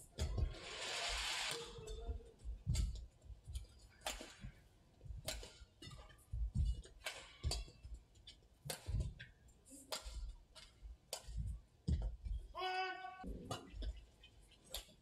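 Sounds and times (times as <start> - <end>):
footsteps on court: 0.0 - 0.7, 1.5 - 12.6
rackets striking shuttlecock: 1.5 - 4.6, 5.2 - 12.1, 13.4 - 15.0.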